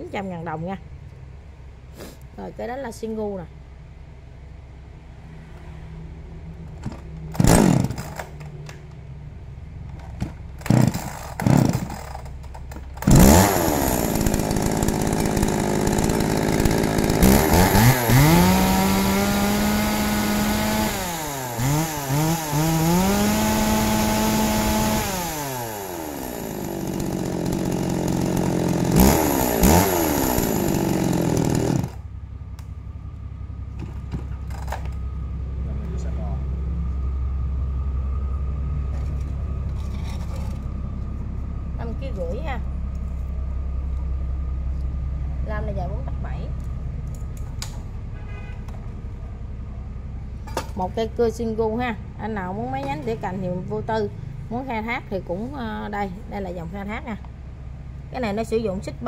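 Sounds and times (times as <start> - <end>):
chainsaw starter cord pulls: 6.8 - 8.7, 10.0 - 32.0
chainsaw engine revving: 6.9 - 8.4, 10.6 - 32.0.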